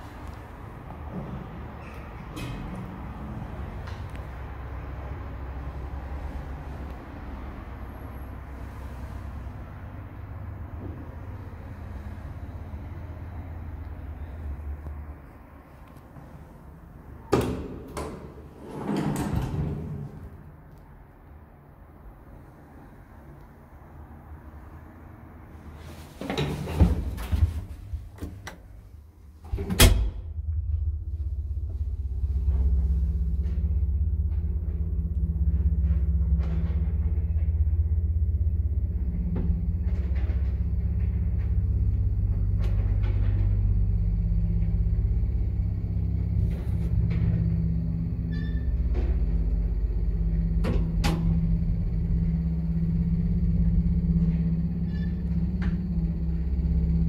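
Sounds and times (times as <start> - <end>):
elevator rumble: 0.0 - 57.0
elevator door banging shut: 17.2 - 20.2, 29.5 - 30.6.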